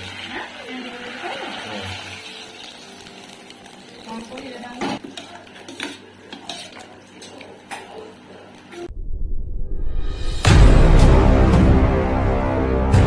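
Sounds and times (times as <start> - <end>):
spoon scraping metal pot: 5.0 - 7.9.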